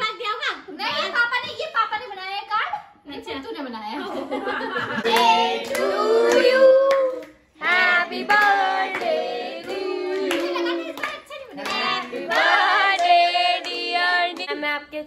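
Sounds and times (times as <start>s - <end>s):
group singing birthday song: 4.1s - 15.0s
hand claps: 5.0s - 14.6s.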